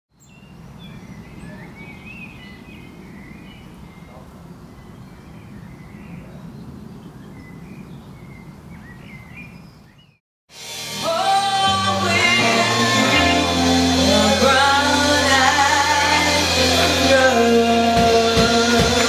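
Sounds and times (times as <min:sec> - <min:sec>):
birds chirping: 0:00.1 - 0:10.2
live band music: 0:10.5 - 0:19.0.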